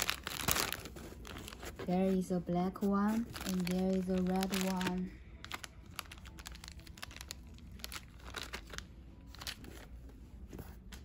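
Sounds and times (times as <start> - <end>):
plastic bag crinkling: 0.0 - 1.9, 2.8 - 9.6.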